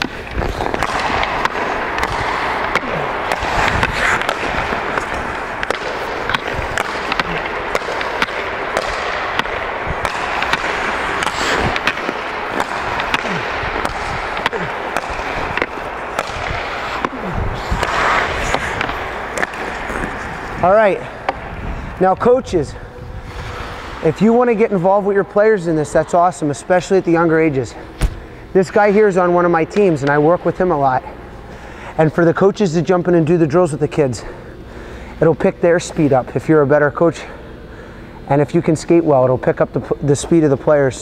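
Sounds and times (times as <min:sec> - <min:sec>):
puck clacking off sticks: 0:00.0 - 0:21.4
skate blades scraping ice: 0:00.0 - 0:21.4, 0:23.2 - 0:25.7.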